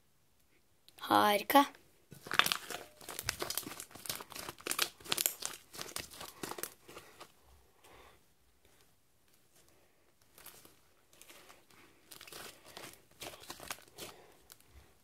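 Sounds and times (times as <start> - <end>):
slime crackling and popping: 2.1 - 7.0, 12.0 - 14.7.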